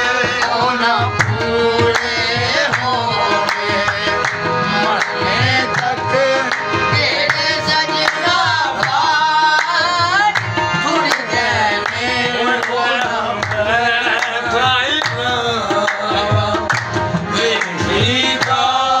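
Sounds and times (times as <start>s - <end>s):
harmoniums: 0.0s - 19.0s
men singing: 0.0s - 19.0s
hand clapping: 0.3s - 18.6s.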